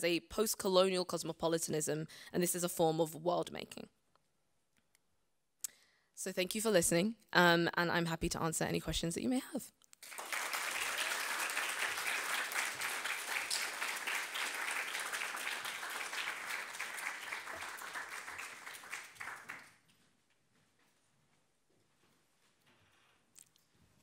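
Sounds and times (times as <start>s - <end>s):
audience applauding: 10.0s - 19.8s.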